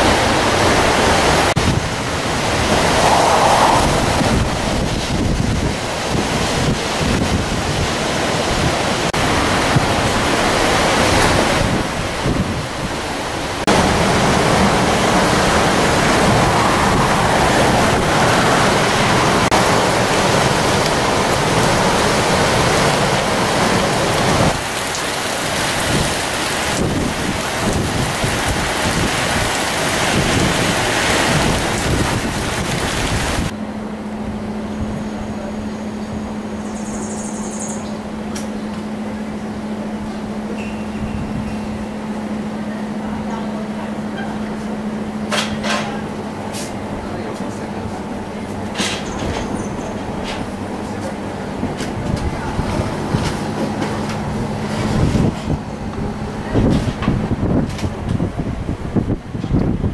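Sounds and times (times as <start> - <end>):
strong wind and driving rain: 0.0 - 59.9
wind buffeting microphone: 0.6 - 24.9, 25.5 - 33.6, 39.7 - 43.2, 49.2 - 59.9.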